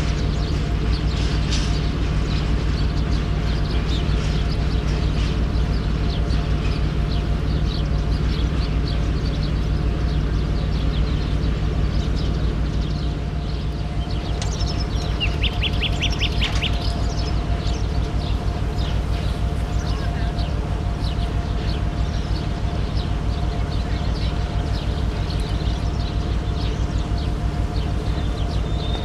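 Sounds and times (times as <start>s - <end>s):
birds chirping: 0.0s - 29.0s
diesel locomotive engine rumbling: 0.0s - 29.0s.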